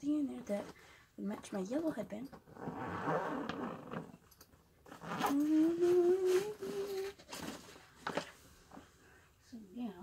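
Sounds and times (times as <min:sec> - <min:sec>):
rustles and knocks of movement: 0:03.5 - 0:09.0
girl humming: 0:05.2 - 0:07.2.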